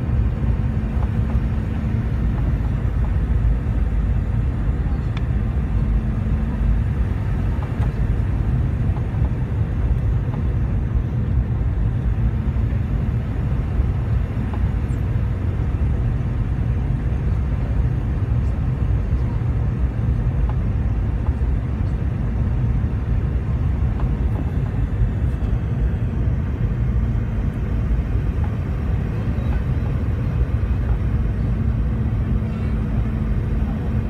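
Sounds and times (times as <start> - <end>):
airplane cabin rumble: 0.0 - 34.0
faint steady hum: 0.0 - 34.0.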